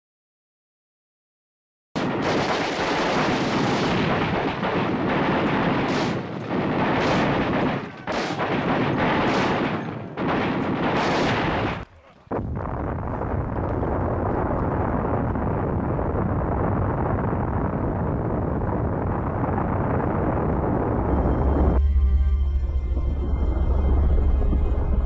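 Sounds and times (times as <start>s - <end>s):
sharp blasts: 2.0s - 13.6s
continuous gunfire: 2.0s - 15.5s.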